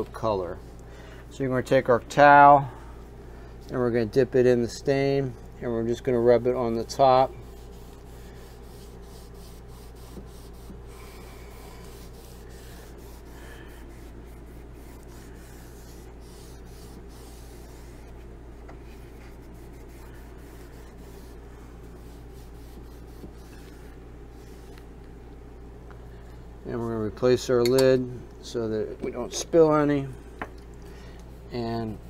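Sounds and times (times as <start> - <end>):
steady low hum: 0.0 - 32.0
cloth rubbing on wood: 6.0 - 24.9.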